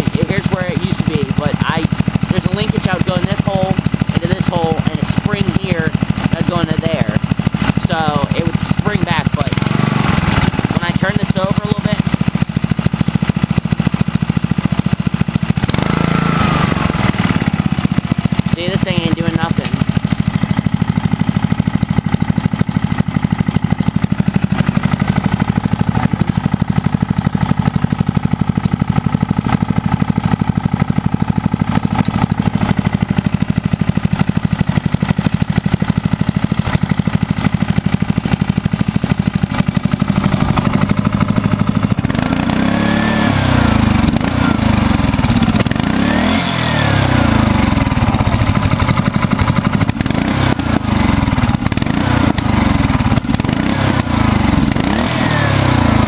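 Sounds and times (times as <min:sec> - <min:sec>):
small engine idling: 0:00.0 - 0:56.0.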